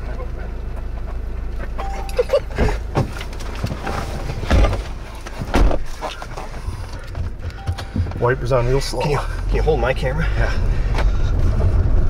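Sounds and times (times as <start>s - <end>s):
car door and cabin clunks: 1.8s - 8.5s
low rumble: 3.7s - 12.0s.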